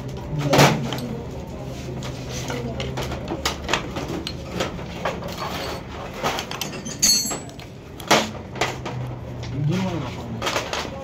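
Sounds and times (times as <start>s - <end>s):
metal tools and engine parts clicking: 5.2s - 9.1s.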